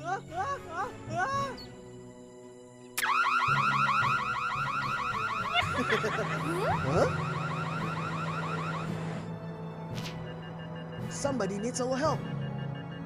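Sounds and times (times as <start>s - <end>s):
warbling alarm siren: 3.0s - 9.3s.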